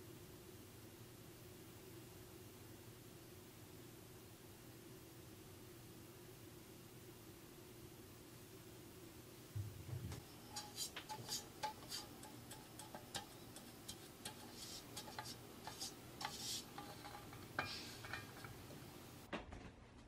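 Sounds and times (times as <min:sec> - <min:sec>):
brush tapping metal tin: 0:10.1 - 0:19.3
brush swishing: 0:10.2 - 0:18.7.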